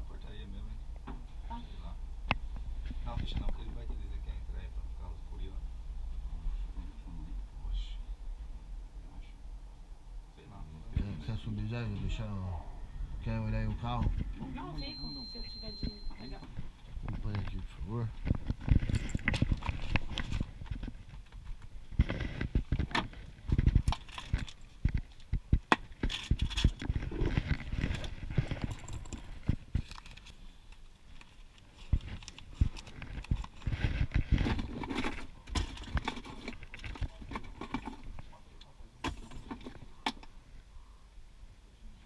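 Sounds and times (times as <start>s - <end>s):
handling clicks and rustles: 16.4s - 40.4s.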